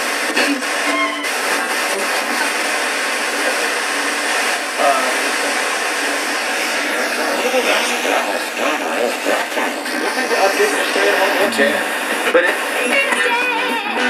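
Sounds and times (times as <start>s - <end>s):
radio static hiss: 0.0s - 14.0s
faint radio voice: 6.8s - 14.0s.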